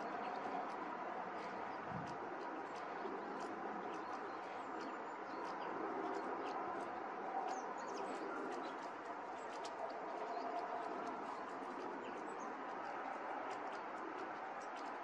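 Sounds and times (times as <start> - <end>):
songbirds chirping: 0.0 - 15.0.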